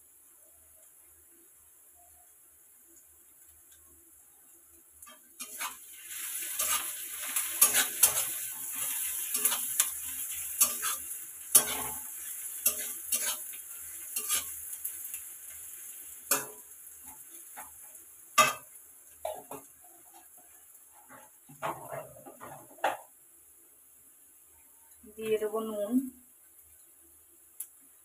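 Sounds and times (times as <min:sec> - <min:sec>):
oil sizzling: 0:00.0 - 0:28.0
spatula scraping metal pan: 0:05.1 - 0:14.6.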